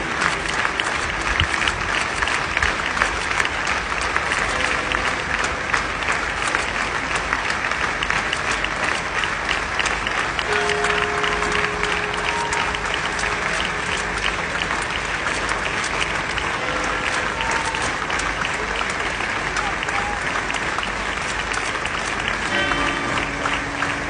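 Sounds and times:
crowd applauding: 0.0 - 24.0.

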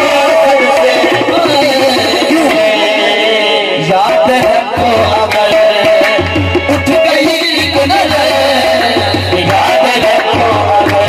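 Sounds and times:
hand drum rhythm: 0.0 - 11.0
harmoniums playing melody: 0.0 - 11.0
voices singing: 0.0 - 11.0.

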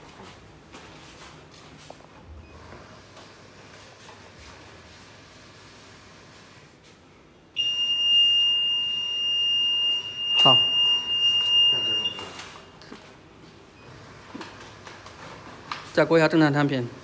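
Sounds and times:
high-pitched alarm buzzer: 7.6 - 12.3.

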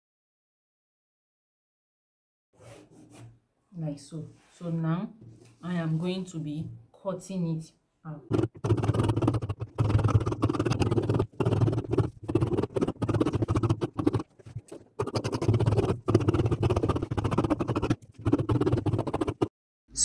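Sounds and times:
scissors cutting fabric: 8.3 - 19.5.

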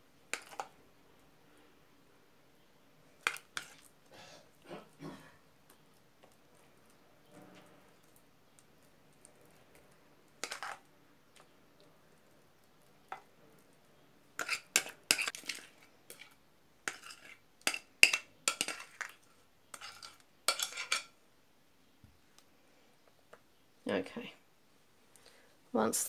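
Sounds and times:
metal spoon scraping glass bowl: 14.4 - 16.3, 19.7 - 21.1.

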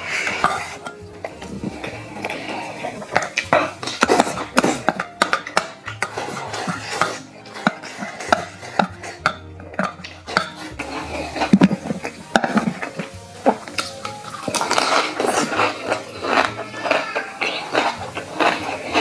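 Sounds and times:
eating sounds: 0.0 - 19.0
chopsticks clicking on metal bowl: 3.1 - 6.1, 7.0 - 10.7.

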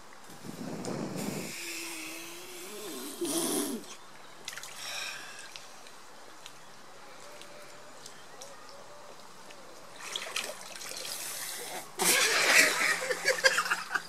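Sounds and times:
water sloshing and splashing: 4.1 - 13.5.

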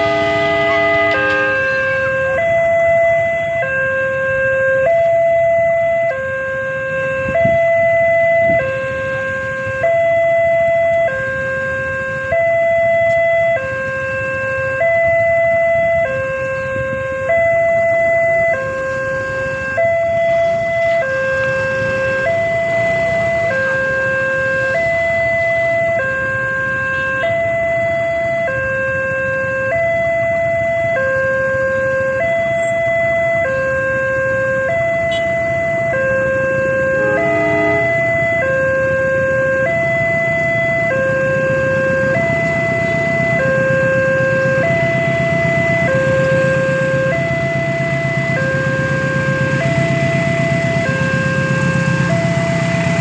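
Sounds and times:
level crossing two-tone alarm: 34.7 - 38.9.

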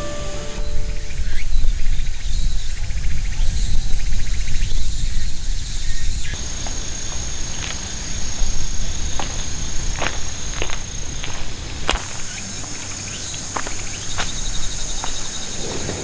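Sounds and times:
insects chirping in pulses: 0.0 - 16.0
high-pitched insect trill: 4.4 - 15.9.

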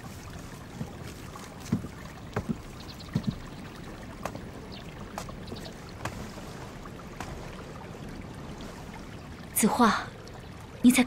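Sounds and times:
footsteps on wooden floor: 0.3 - 3.6.

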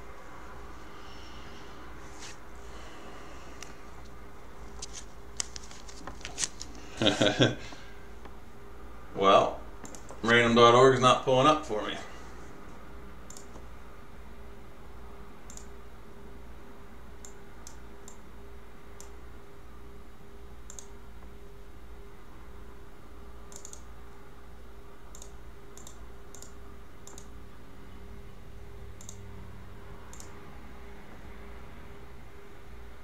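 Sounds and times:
computer clicks: 9.8 - 10.2, 13.2 - 13.7, 15.5 - 15.8, 17.2 - 18.2, 20.6 - 21.0, 23.5 - 23.9, 25.1 - 27.4, 29.0 - 29.3, 30.1 - 30.4.

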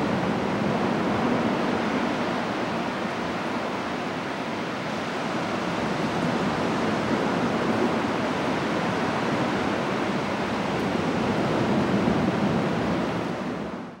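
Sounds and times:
rush of moving water: 0.0 - 14.0.

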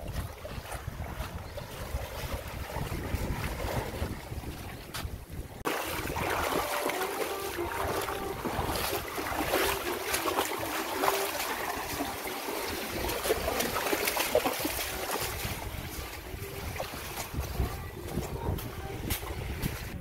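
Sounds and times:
small waves lapping on sand: 0.0 - 20.0.

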